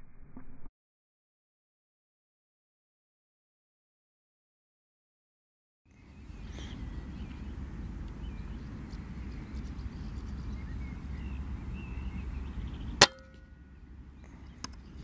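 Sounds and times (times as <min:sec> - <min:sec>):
faint bird chirps: 0:05.9 - 0:15.0
low steady rumble: 0:05.9 - 0:15.0
air rifle firing: 0:13.0 - 0:13.3.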